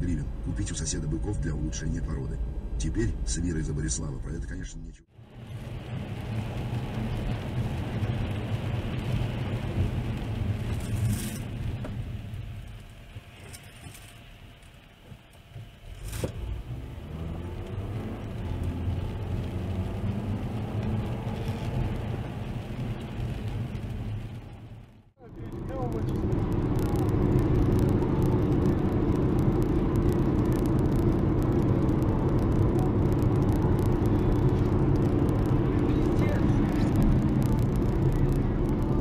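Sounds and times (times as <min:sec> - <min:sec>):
car engine and road rumble: 0:00.0 - 0:39.0
tyre hiss on wet road: 0:05.2 - 0:24.2.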